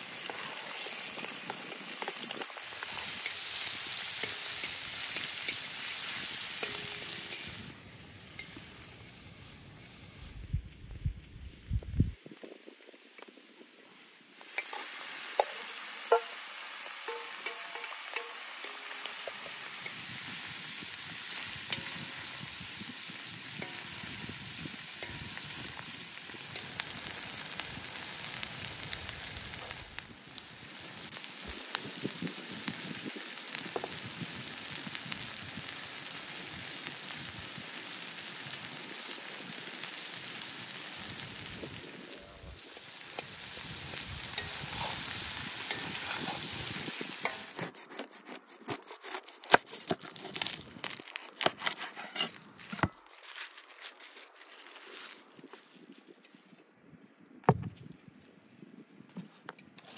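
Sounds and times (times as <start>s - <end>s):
food sizzling in a pan: 0.0s - 10.8s, 12.3s - 47.7s.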